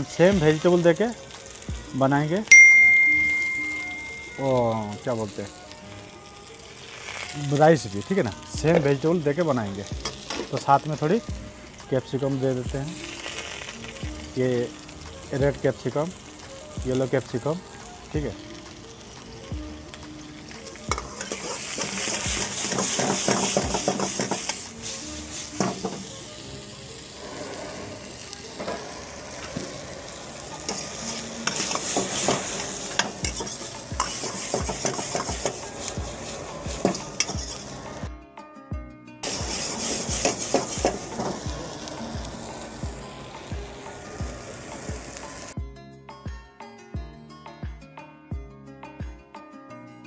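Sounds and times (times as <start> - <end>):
vegetables sizzling in a wok: 0.0 - 38.1, 39.2 - 45.6
steel ladle clanking and scraping: 20.9 - 24.6, 30.7 - 35.6, 36.7 - 37.8, 39.3 - 41.3.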